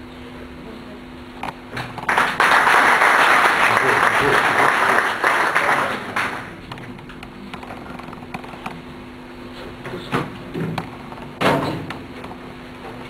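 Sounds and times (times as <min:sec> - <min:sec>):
steady low hum: 0:00.0 - 0:13.0
applause: 0:02.0 - 0:06.6.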